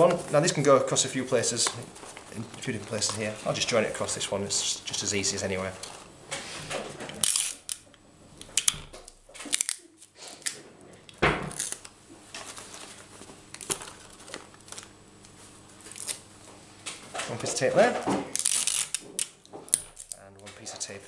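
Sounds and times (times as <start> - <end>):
stiff paper rustling and crackling: 11.6 - 16.2.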